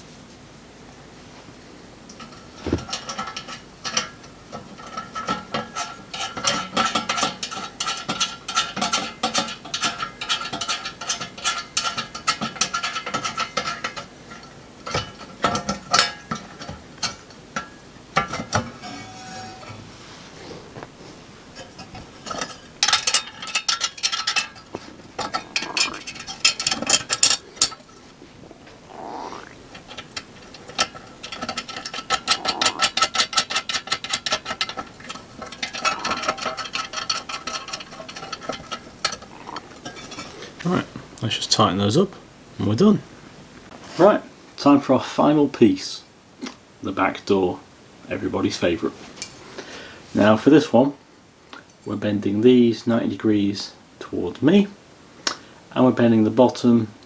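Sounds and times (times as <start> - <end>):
metal nuts clicking and rattling: 2.1 - 18.9, 21.2 - 40.6.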